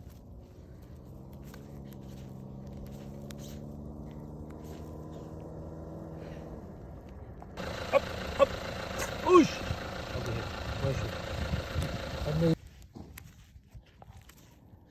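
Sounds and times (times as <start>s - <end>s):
vehicle engine idling: 0.0s - 12.6s.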